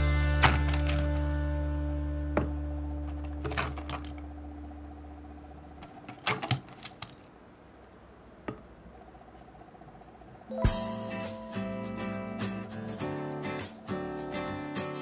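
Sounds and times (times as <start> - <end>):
held background music note: 10.5 - 15.0.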